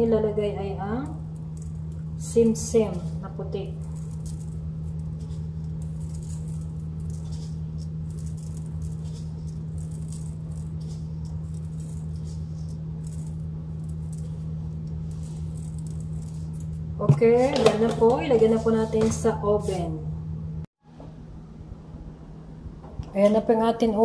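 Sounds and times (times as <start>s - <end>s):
steady low hum: 0.0s - 24.0s
seeds pattering onto dough: 0.8s - 18.3s
seeds rattling in plastic shaker: 1.2s - 17.5s.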